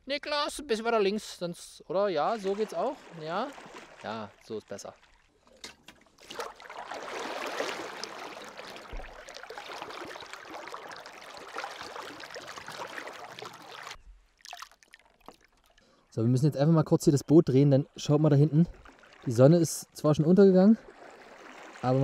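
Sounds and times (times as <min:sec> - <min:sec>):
water gurgling into canister: 0:06.2 - 0:15.8.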